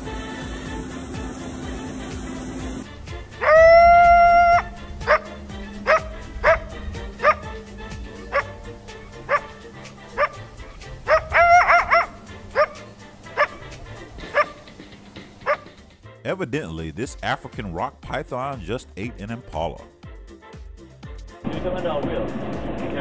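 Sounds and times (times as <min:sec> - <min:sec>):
coyote howling: 0:03.2 - 0:15.8
coyote barking: 0:03.2 - 0:15.9
coyote yipping: 0:03.3 - 0:15.8.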